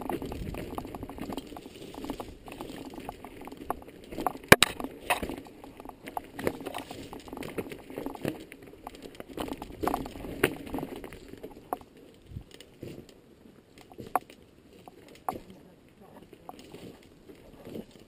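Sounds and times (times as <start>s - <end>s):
bike knocks and rattles: 0.0s - 11.8s.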